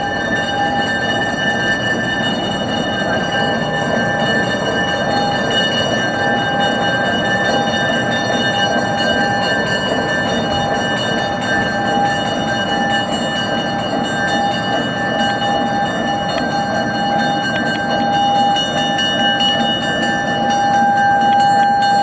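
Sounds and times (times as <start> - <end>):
diesel locomotive engine running: 0.0 - 22.0
steady whine: 0.0 - 22.0.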